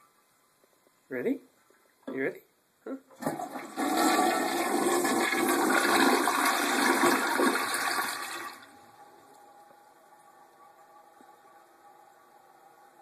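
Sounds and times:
toilet flushing: 3.1 - 9.0.

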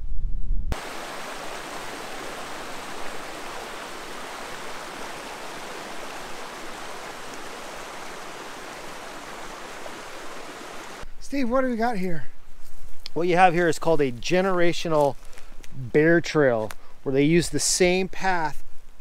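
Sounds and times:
creek water rushing: 0.8 - 11.0.

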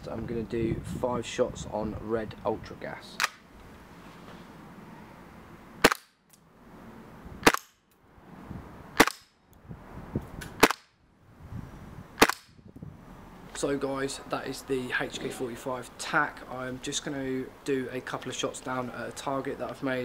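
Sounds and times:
suppressed airsoft pistol shots: 5.8 - 6.2, 7.4 - 7.8, 9.0 - 9.3, 10.6 - 11.0, 12.2 - 12.6.

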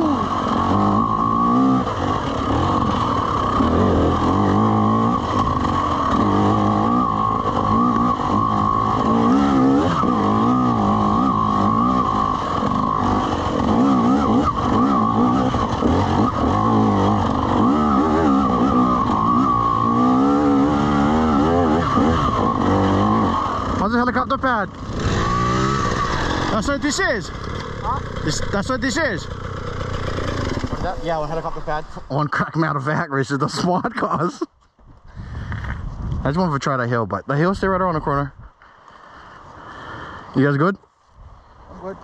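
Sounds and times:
dirt bike engine revving: 0.0 - 32.5.

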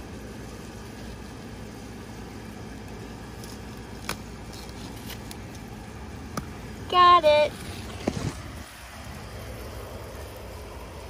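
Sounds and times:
low background hum: 0.0 - 11.0
knife snapping through stem: 4.0 - 5.4.

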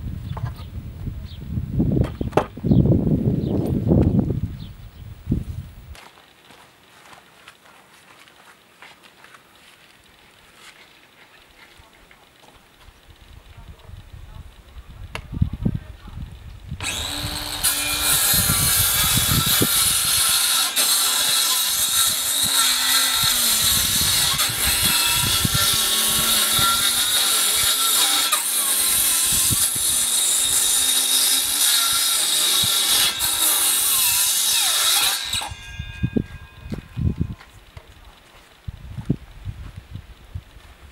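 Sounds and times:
knocks: 2.0 - 2.6
circular saw cutting wood: 16.8 - 37.8.

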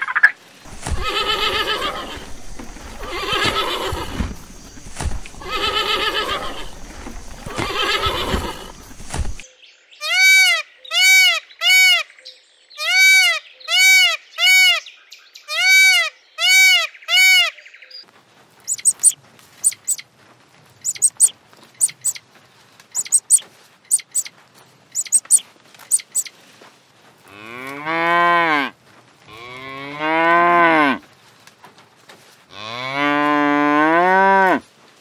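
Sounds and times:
background hiss: 0.0 - 9.4, 18.1 - 35.0
peacock calling: 0.0 - 9.4, 15.5 - 17.7, 18.6 - 20.0, 20.8 - 22.2, 22.9 - 26.4
wavering animal call: 0.7 - 4.4, 5.3 - 8.9, 18.7 - 20.0, 20.8 - 22.2, 23.0 - 24.3, 25.0 - 26.3
faint high chirps: 18.6 - 20.0, 20.8 - 22.2, 22.9 - 24.3, 24.9 - 26.3.

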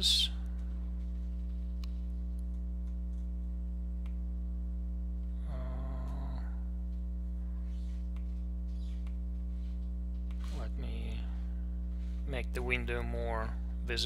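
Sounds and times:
electrical mains hum: 0.0 - 14.0
murmured voice: 5.4 - 6.7.

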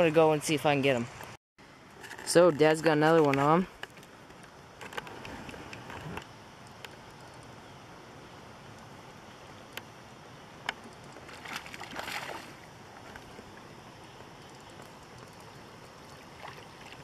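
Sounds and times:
fish splashing in water: 11.2 - 13.0, 16.0 - 17.0.

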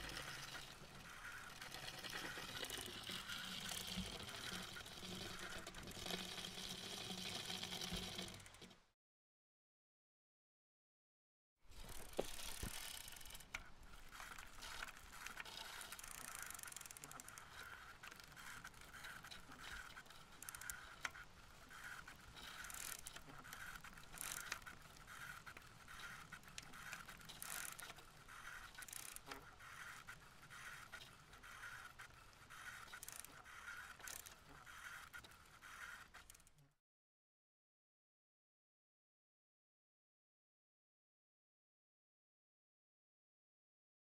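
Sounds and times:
bicycle drivetrain noise: 0.0 - 8.8, 11.7 - 36.7.

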